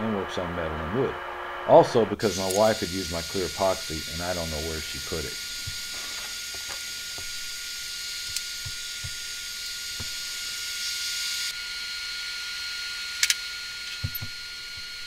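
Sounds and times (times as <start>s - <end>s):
steady hiss: 0.0s - 11.5s
faint high whine: 0.0s - 15.0s.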